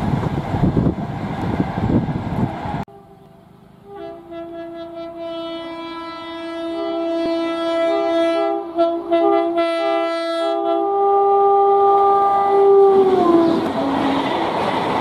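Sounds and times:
train horn: 0:02.9 - 0:14.5.

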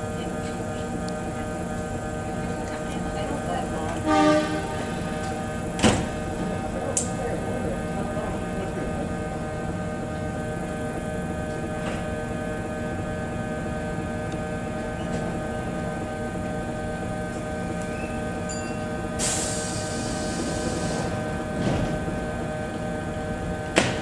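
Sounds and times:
electric train humming: 0:00.0 - 0:24.0
compressed air hiss: 0:19.2 - 0:21.1.

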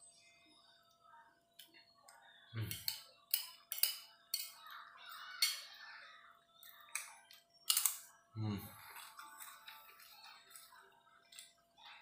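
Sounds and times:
metal spoon clinking on plate: 0:02.7 - 0:04.6, 0:06.9 - 0:08.1.

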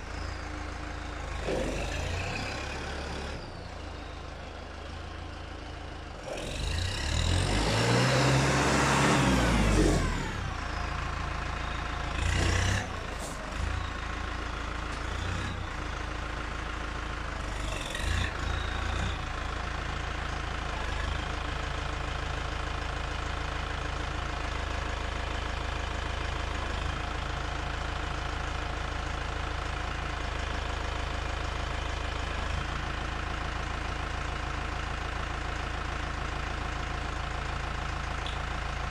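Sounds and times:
tractor diesel engine revving: 0:00.0 - 0:38.9.

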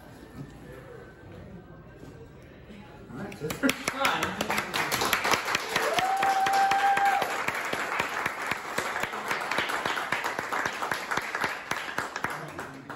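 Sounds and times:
audience applauding: 0:03.5 - 0:12.9.

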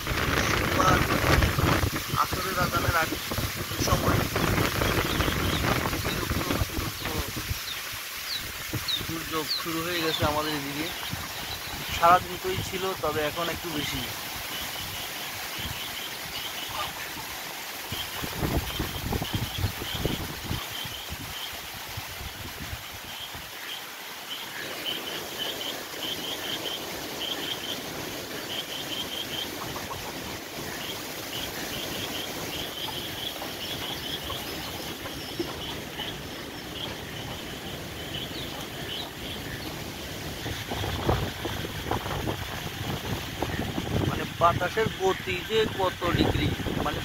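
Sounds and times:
wind buffeting microphone: 0:00.0 - 0:09.3, 0:17.9 - 0:23.5, 0:32.3 - 0:47.0
strong wind rushing through trees: 0:00.0 - 0:47.0.

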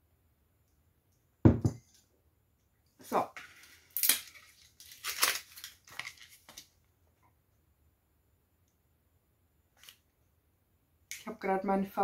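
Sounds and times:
plastic packaging crackling: 0:03.6 - 0:06.8.

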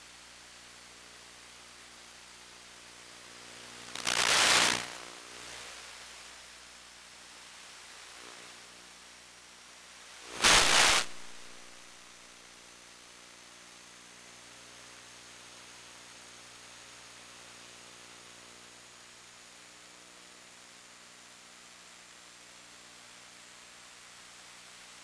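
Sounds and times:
steady radio hiss: 0:00.0 - 0:25.0
loud static bursts: 0:03.4 - 0:06.2, 0:10.1 - 0:12.2.

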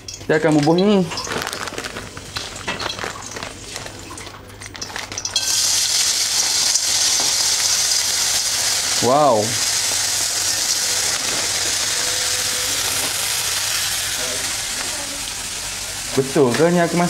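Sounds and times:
vegetables sizzling in oil: 0:00.0 - 0:17.0
vegetables rustling from a bag: 0:00.5 - 0:05.2.

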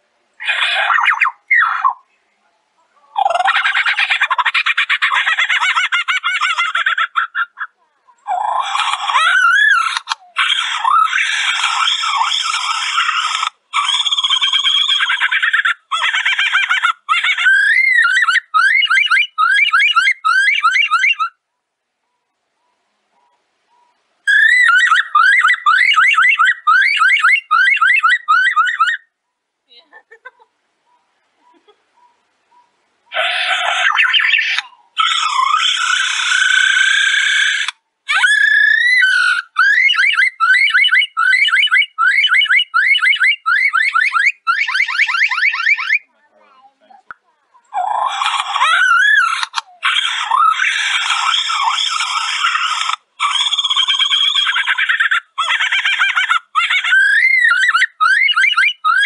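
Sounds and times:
lyrebird mimicry song: 0:00.4 - 0:02.3, 0:17.1 - 0:29.1, 0:30.8 - 0:35.5, 0:38.1 - 0:46.1, 0:47.7 - 0:59.0.

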